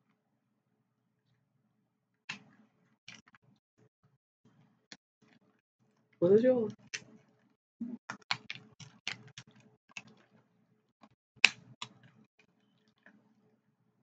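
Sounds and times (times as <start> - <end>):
crab shells cracking: 8.1 - 10.4.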